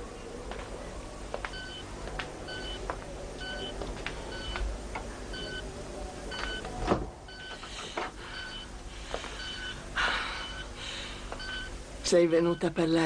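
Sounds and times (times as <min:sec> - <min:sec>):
patient monitor beeping: 0:01.5 - 0:04.7, 0:05.3 - 0:05.7, 0:06.3 - 0:13.0.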